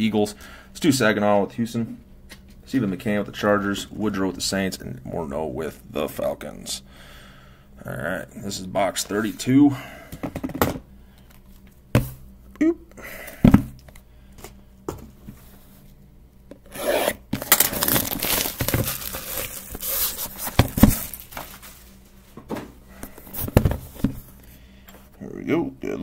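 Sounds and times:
box rubbing and scraping: 16.6s - 17.2s, 17.8s - 21.2s.

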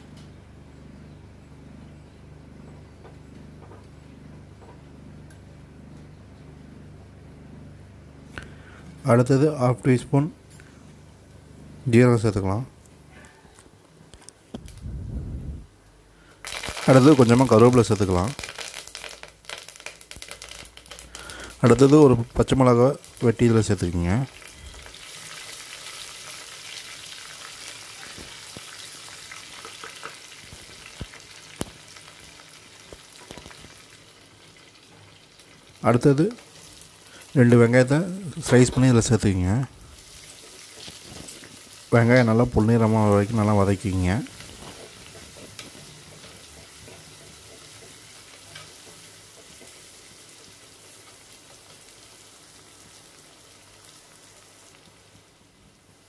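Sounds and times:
spices sizzling in hot oil: 16.4s - 38.9s, 39.8s - 56.0s.

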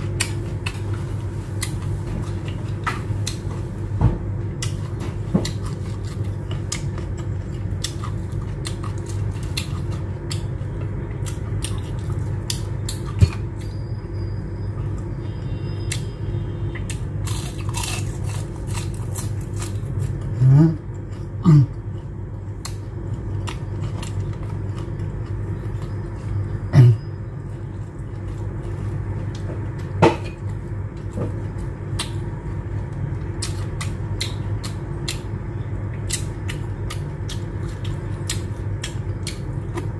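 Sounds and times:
steady low hum: 0.0s - 39.9s
chewing and lip smacks: 4.6s - 13.4s, 33.3s - 39.9s.

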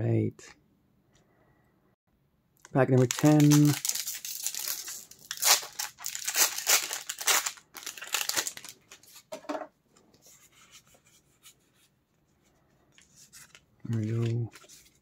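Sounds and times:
foil wrapper crinkling: 2.6s - 9.1s.

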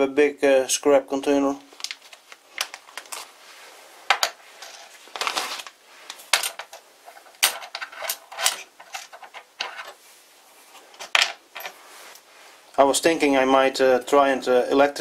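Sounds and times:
small metal tools clinking: 6.3s - 10.0s.

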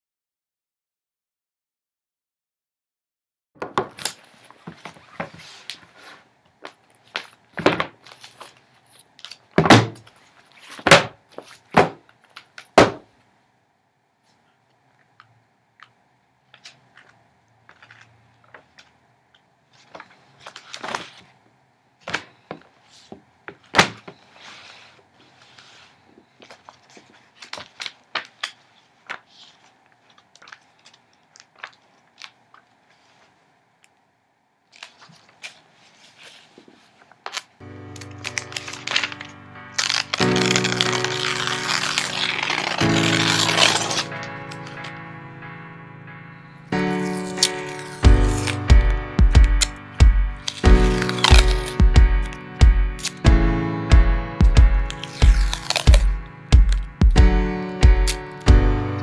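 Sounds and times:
pages riffling and rustling: 3.8s - 12.8s, 16.5s - 19.0s, 19.7s - 21.4s, 22.0s - 33.4s, 34.7s - 45.0s, 46.8s - 48.8s, 50.4s - 52.4s, 54.9s - 57.0s
magazines slapped on wood: 9.6s - 10.0s, 10.8s - 13.0s, 23.7s - 24.2s.

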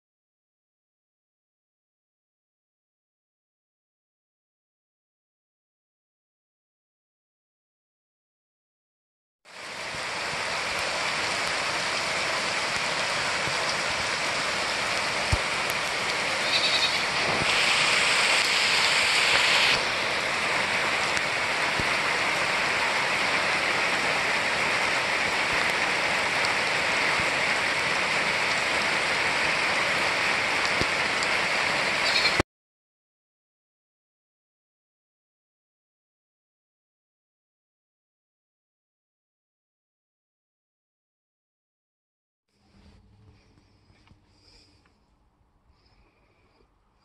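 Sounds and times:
steady rain falling: 9.5s - 32.4s.

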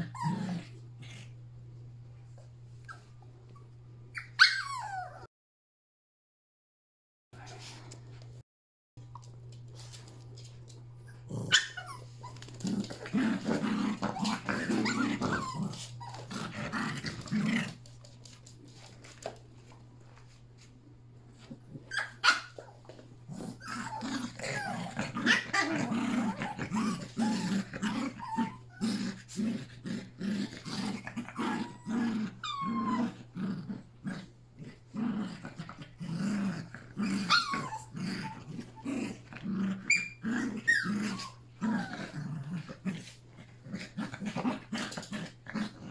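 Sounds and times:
dogs growling: 0.0s - 1.4s, 11.1s - 17.9s, 23.3s - 45.9s
dog yipping: 4.1s - 5.3s, 11.5s - 12.4s, 21.9s - 22.8s, 31.4s - 33.2s, 37.1s - 38.4s.

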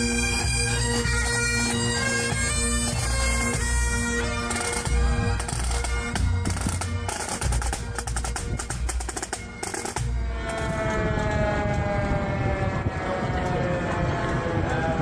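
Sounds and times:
bass drum beats: 1.7s - 10.5s
fire truck siren falling in pitch: 9.7s - 15.0s.

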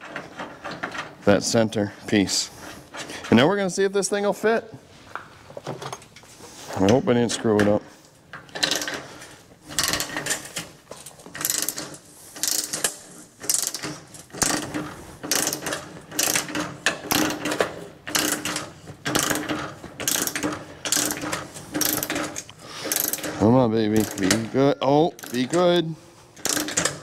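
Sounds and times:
ratchet wrench clicking: 8.5s - 9.0s, 11.4s - 23.3s, 23.9s - 24.4s, 25.2s - 25.7s, 26.4s - 27.0s.

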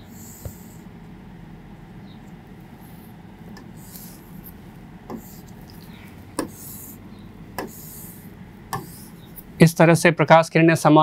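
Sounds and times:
low room hum: 0.0s - 11.0s
stylus rubbing on screen: 2.7s - 9.6s
stylus tapping on screen: 3.5s - 6.8s, 7.5s - 8.1s, 8.7s - 9.5s.

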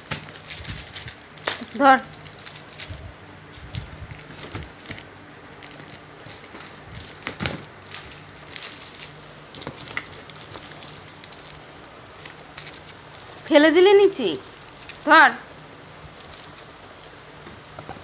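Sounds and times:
plastic-wrapped box being opened: 0.0s - 13.5s
low hum: 0.0s - 17.8s.

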